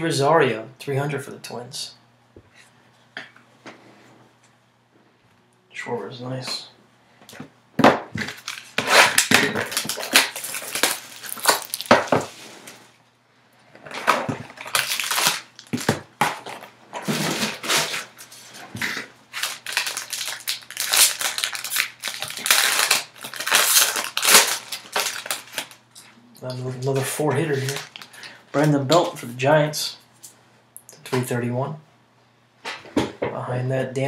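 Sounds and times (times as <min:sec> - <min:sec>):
foil wrapper crinkling and tearing: 0:08.2 - 0:12.4, 0:13.9 - 0:25.8, 0:26.8 - 0:29.2.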